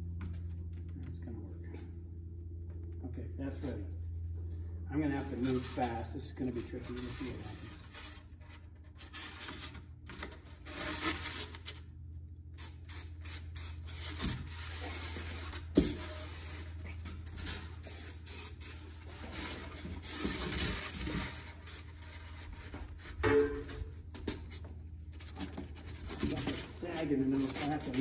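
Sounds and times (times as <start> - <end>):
steady low hum: 0.0 - 28.0
foam and cardboard rustling: 5.2 - 11.8, 13.6 - 23.3, 24.0 - 28.0.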